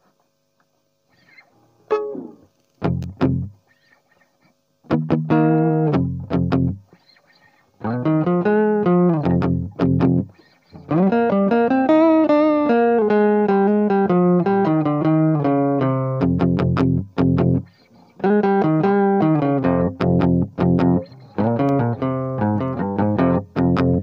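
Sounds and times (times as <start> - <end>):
acoustic guitar chords: 4.9 - 6.8, 7.8 - 24.0.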